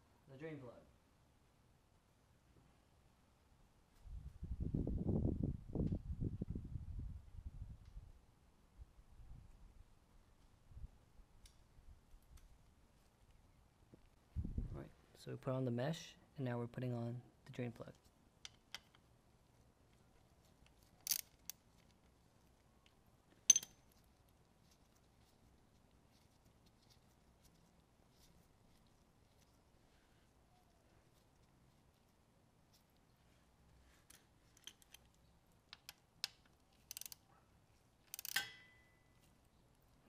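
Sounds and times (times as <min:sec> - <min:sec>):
ratchet wrench clicking: 0:21.0 - 0:21.6, 0:36.8 - 0:37.2, 0:38.1 - 0:38.6
metal bar clinking down: 0:23.5 - 0:23.8, 0:38.2 - 0:38.9
light metal clicks of socket: 0:34.1 - 0:37.2, 0:38.1 - 0:38.7
light metal clicks and taps: 0:38.1 - 0:39.3.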